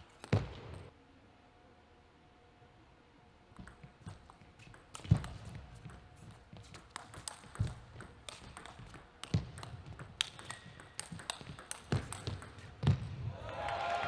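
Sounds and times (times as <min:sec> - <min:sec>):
ping pong ball clicking: 0:03.6 - 0:06.1, 0:06.7 - 0:12.9
applause: 0:13.4 - 0:14.0.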